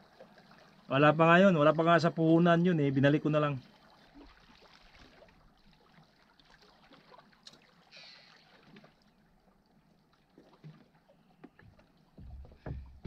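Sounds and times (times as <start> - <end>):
water lapping against boulders: 0.0 - 13.0
soft knocks: 11.4 - 13.0.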